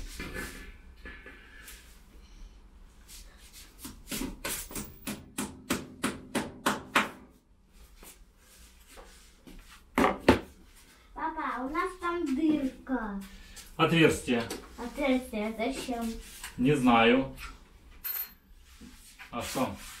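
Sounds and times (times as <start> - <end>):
hammer tapping on wall: 4.8 - 7.2.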